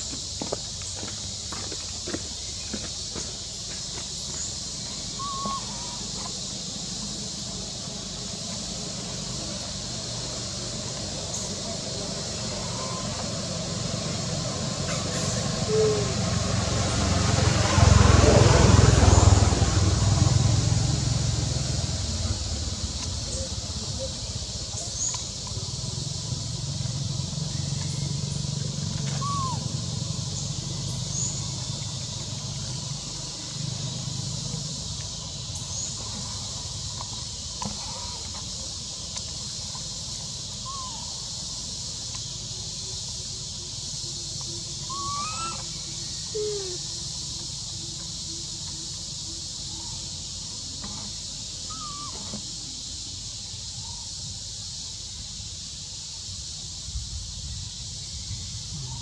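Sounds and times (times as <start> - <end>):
steady high-pitched hiss: 0.0 - 59.0
short arched chirping calls: 4.9 - 6.4, 14.9 - 16.3, 29.1 - 29.8, 44.6 - 47.2, 51.6 - 52.4.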